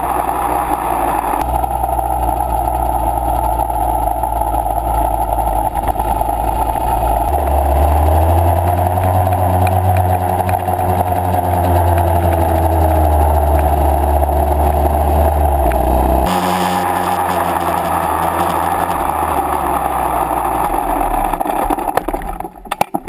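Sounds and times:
two-stroke dirt bike engine: 0.0 - 23.0.

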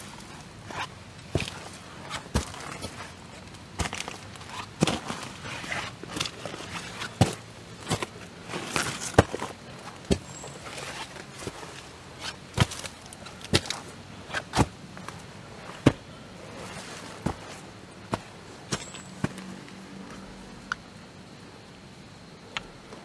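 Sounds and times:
leaves rustling: 0.0 - 21.7
footsteps crunching dry leaves: 3.8 - 19.8.

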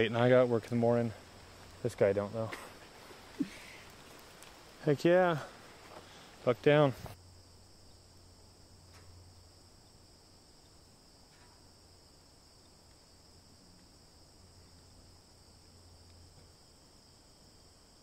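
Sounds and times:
faint crickets calling: 0.0 - 18.0
soft ticks: 16.0 - 16.2.

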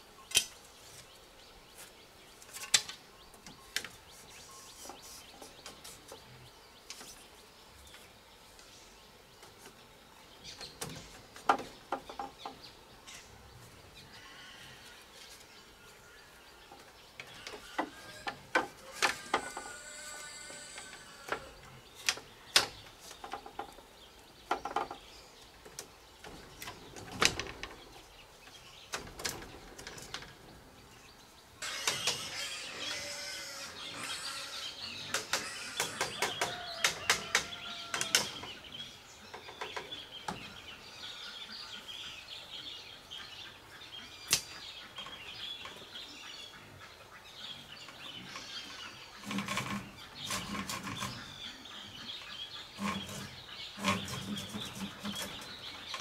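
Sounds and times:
birds chirping: 0.0 - 56.0
bamboo slats knocking and clattering: 2.4 - 4.0, 10.6 - 12.6, 16.7 - 19.8, 20.9 - 28.1, 28.9 - 30.5, 35.1 - 38.6, 49.2 - 51.2.

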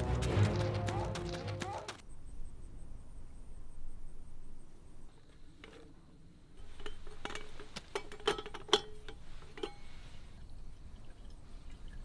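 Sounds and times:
metal kettle lid clinking: 6.7 - 9.8.

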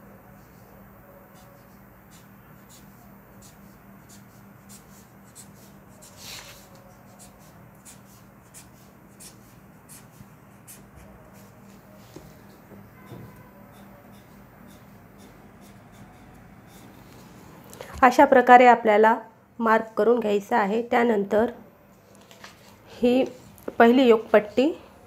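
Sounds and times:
pen scratching on paper: 1.3 - 17.5.

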